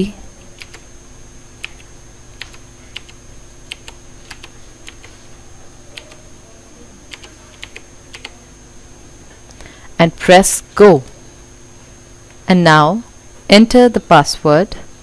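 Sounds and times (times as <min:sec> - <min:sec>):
computer keyboard keystrokes: 0:00.6 - 0:00.8, 0:01.6 - 0:05.2, 0:06.0 - 0:06.2, 0:07.1 - 0:08.4.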